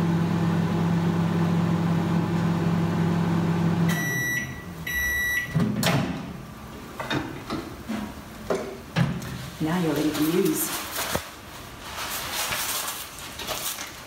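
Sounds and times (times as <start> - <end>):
microwave oven humming: 0.0 - 6.9
microwave beeps: 3.8 - 5.6.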